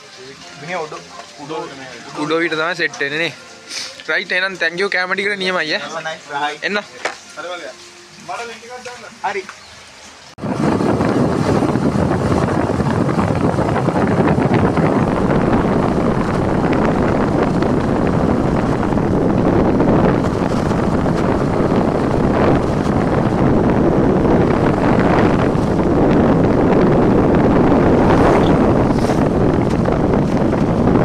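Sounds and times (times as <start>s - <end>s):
road noise: 0.0s - 31.0s
wind buffeting microphone: 10.3s - 31.0s.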